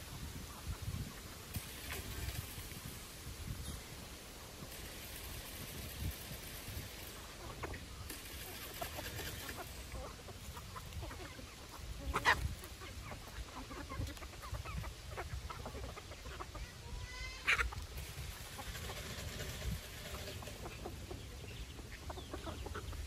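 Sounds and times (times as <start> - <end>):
chickens clucking softly: 0.0 - 23.0
sharp chicken calls: 4.6 - 23.0.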